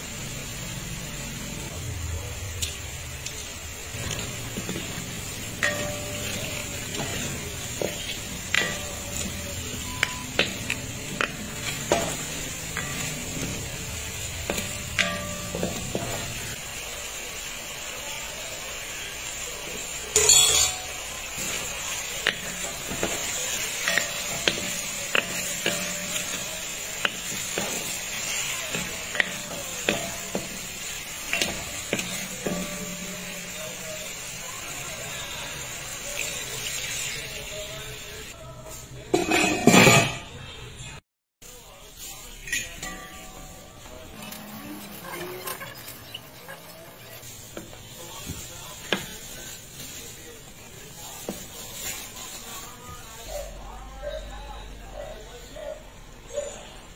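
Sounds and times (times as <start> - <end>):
meat sizzling in oil: 0.0 - 38.4, 43.3 - 53.6
utensil scraping a pan: 42.3 - 50.0.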